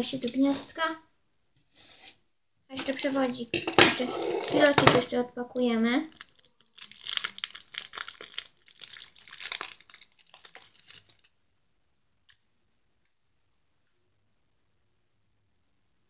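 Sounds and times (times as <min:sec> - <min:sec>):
plastic wrapper crinkling and tearing: 0:02.7 - 0:11.3.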